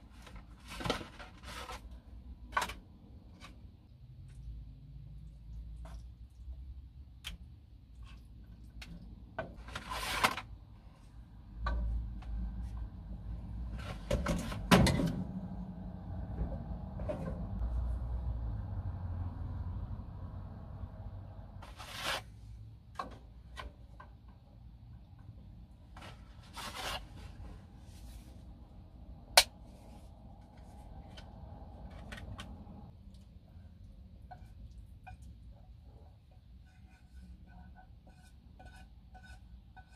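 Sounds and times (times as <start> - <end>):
utensils scraping metal saucepan: 36.4 - 39.9.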